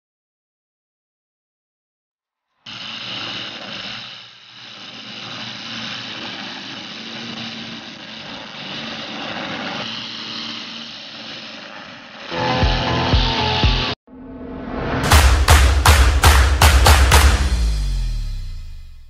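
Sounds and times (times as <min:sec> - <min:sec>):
music with heavy beats: 0:12.3 - 0:14.0, 0:15.0 - 0:19.0.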